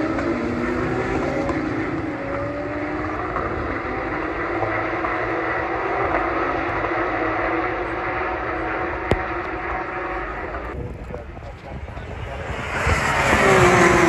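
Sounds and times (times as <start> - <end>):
distant race car engines: 0.0 - 14.0.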